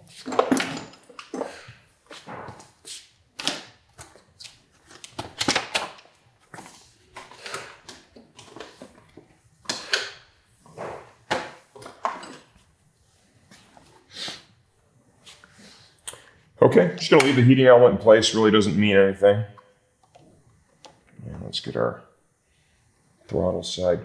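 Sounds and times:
tools handled at a workbench: 0:00.0 - 0:12.6.

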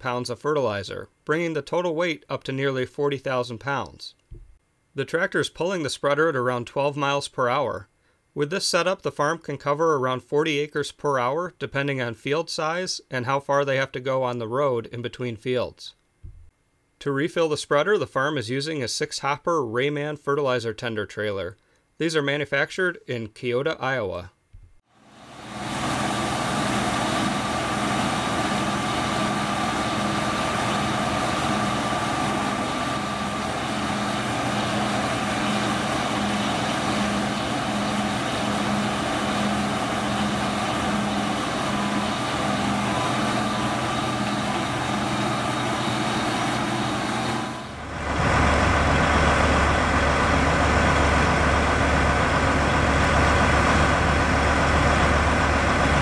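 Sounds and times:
deep diesel rumble: 0:25.2 - 0:56.0
diesel engines idling: 0:25.2 - 0:56.0.

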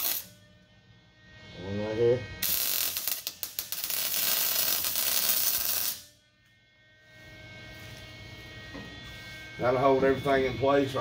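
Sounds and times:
welder arc crackling and hissing: 0:00.0 - 0:00.4, 0:01.6 - 0:06.1, 0:07.1 - 0:11.0.

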